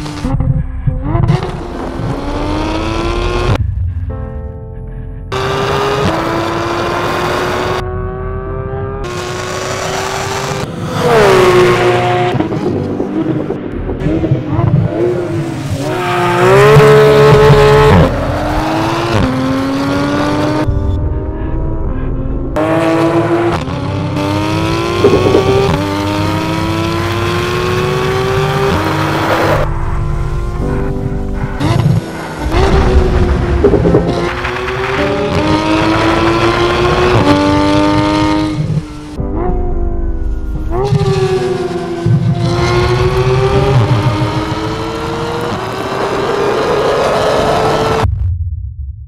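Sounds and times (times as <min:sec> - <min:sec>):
sports car engine accelerating: 0:00.0 - 0:03.6, 0:05.3 - 0:48.1.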